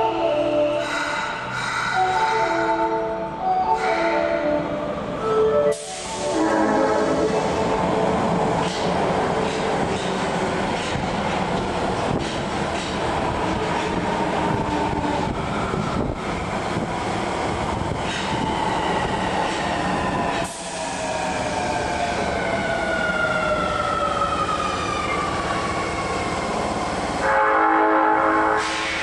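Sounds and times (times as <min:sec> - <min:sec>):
subway train braking: 0:00.0 - 0:29.0
train horn blast: 0:05.7 - 0:07.4, 0:27.2 - 0:29.0.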